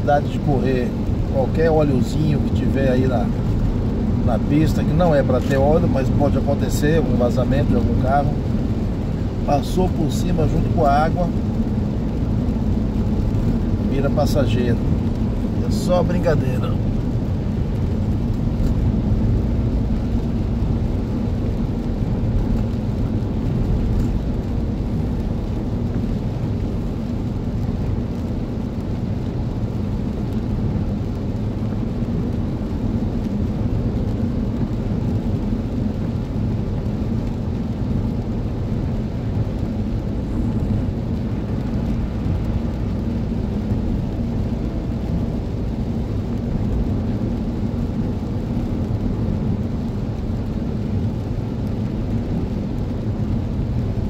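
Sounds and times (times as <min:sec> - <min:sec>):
engine noise: 0:00.0 - 0:54.0
road rumble inside vehicle: 0:00.0 - 0:54.0
tyres on wet road: 0:00.0 - 0:54.0.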